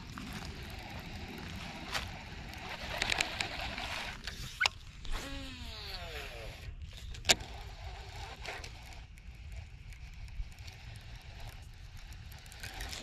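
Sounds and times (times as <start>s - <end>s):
steady low rumble: 0.0s - 5.8s
fishing reel being cranked: 0.2s - 13.0s
reel clicking: 0.5s - 13.0s.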